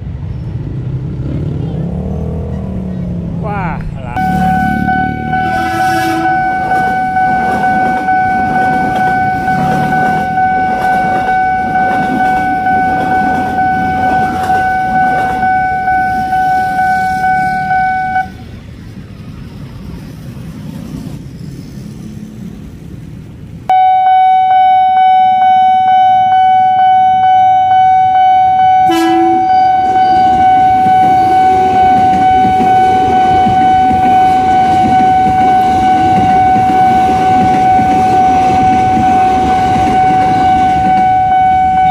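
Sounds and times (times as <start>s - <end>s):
train passing: 0.0s - 23.8s, 24.4s - 41.9s
rumbling road and rail traffic: 0.0s - 41.9s
level crossing alarm tone: 3.6s - 18.4s, 23.7s - 41.9s.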